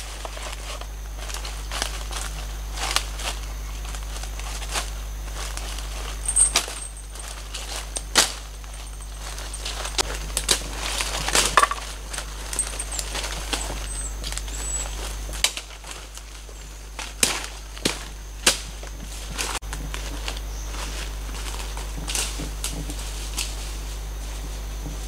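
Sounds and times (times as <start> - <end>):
footsteps crunching dry leaves: 0.0 - 25.0
faint high chirps: 12.8 - 15.0
sharp twig cracks: 17.2 - 18.7.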